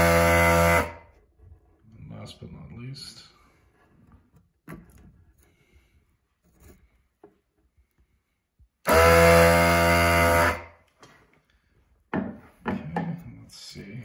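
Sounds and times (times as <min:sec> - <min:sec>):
suction pump humming: 0:00.0 - 0:01.2, 0:08.8 - 0:10.6.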